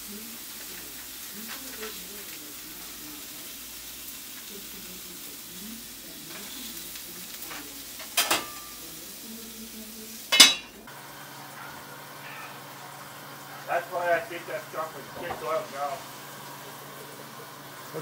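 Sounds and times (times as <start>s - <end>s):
meat sizzling in a skillet: 0.0s - 18.0s
metal utensil clanking on pan: 7.5s - 8.8s, 10.3s - 10.8s.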